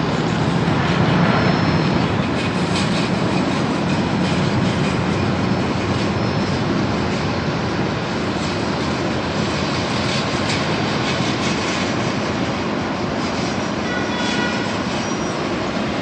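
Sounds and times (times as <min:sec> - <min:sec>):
distant jet engines rushing: 0:00.0 - 0:16.0
faint high engine whine: 0:00.0 - 0:16.0.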